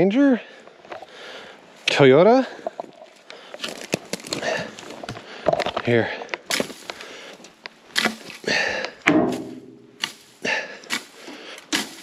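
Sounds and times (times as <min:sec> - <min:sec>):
heavy breathing: 0:00.4 - 0:01.8, 0:02.5 - 0:07.5, 0:08.4 - 0:09.1, 0:10.4 - 0:11.7
boots crunching in dry grass: 0:06.5 - 0:07.0, 0:09.3 - 0:12.0.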